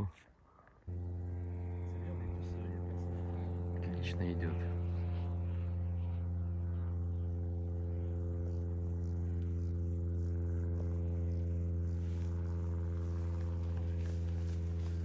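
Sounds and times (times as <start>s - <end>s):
steady low mechanical hum: 0.0s - 15.0s.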